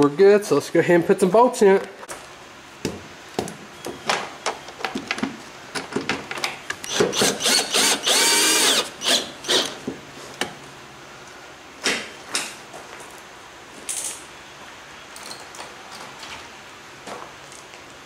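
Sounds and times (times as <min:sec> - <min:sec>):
cordless drill motor whine: 0:06.9 - 0:09.8.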